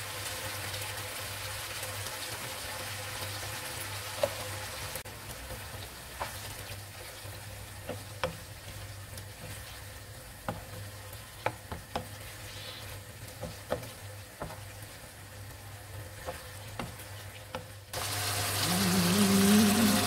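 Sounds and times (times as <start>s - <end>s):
curry frying hiss: 0.0s - 20.0s
wooden spoon tapping pan: 10.4s - 12.2s, 13.3s - 14.8s.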